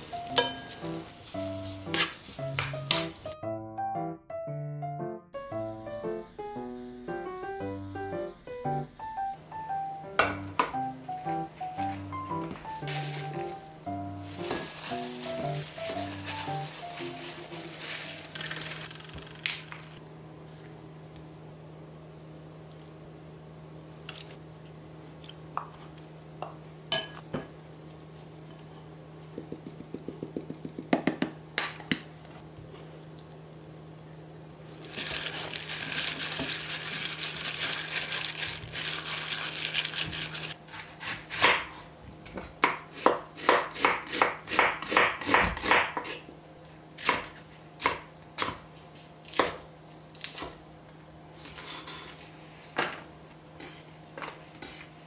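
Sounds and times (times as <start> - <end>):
spoons clinking on glass bowl: 0.3 - 0.9, 26.9 - 27.2
plastic glove crinkling: 12.6 - 18.9, 34.7 - 40.6
knife chopping on wooden board: 40.7 - 41.8, 42.4 - 46.2.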